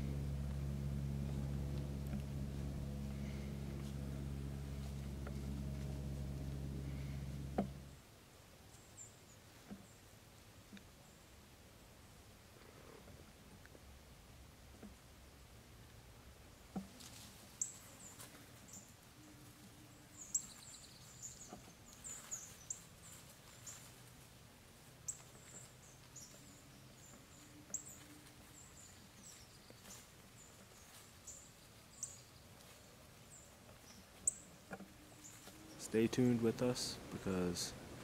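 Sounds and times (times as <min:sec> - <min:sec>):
small birds chip calls: 0:17.5 - 0:24.0, 0:24.9 - 0:38.0.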